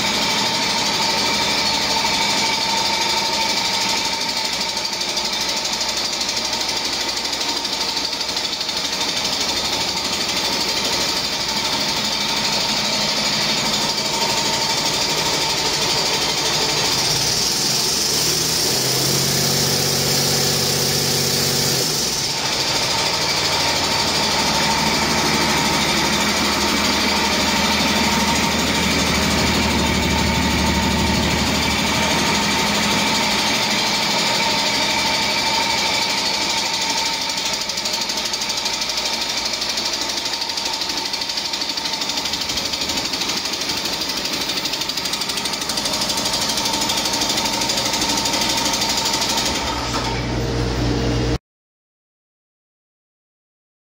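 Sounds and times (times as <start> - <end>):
diesel engine clattering: 0.0 - 50.4.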